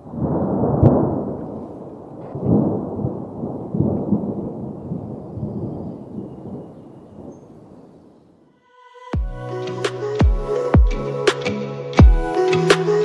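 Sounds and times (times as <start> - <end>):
sharp thunder crack: 0.0 - 6.6
thunder rumbling: 0.0 - 8.4.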